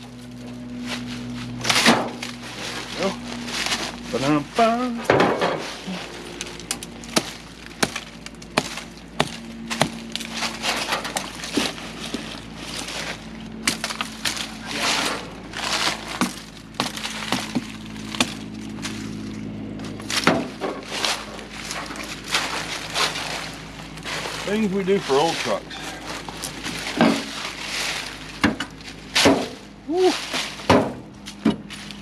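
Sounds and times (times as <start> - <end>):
branches and leaves rustling: 0.0 - 32.0
machetes chopping wood: 1.0 - 19.1, 20.0 - 23.2, 28.4 - 31.8
wood snapping: 6.3 - 24.1.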